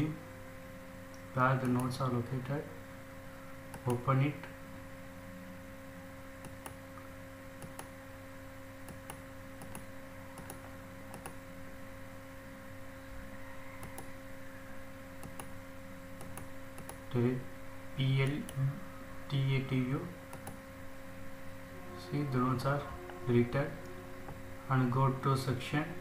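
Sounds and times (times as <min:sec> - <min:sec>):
electrical hum: 0:00.0 - 0:26.0
computer mouse clicking: 0:06.4 - 0:06.8, 0:07.6 - 0:07.9, 0:08.8 - 0:11.4, 0:13.8 - 0:14.1, 0:15.2 - 0:15.6, 0:16.2 - 0:17.0, 0:20.3 - 0:20.6.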